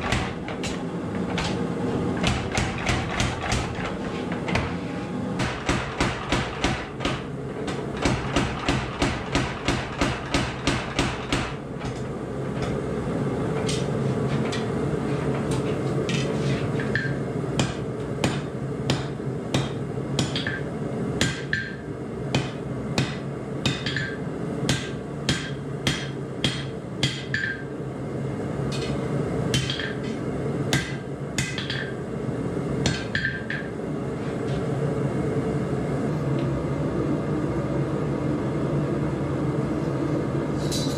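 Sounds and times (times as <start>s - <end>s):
power hammer pounding steel: 0.0s - 1.6s, 2.2s - 4.0s, 5.4s - 12.0s, 16.8s - 20.6s, 21.2s - 27.6s
machine hum: 0.0s - 40.9s.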